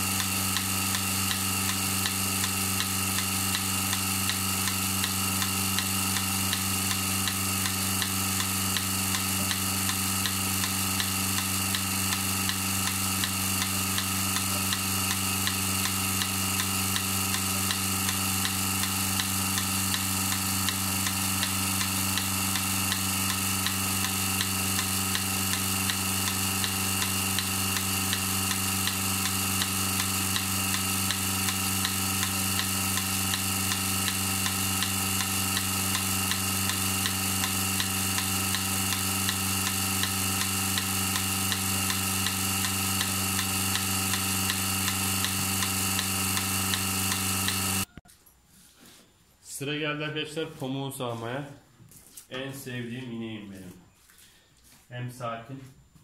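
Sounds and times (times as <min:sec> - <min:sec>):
pulsator clicking: 0:00.0 - 0:48.0
vacuum pump hum: 0:00.0 - 0:48.0.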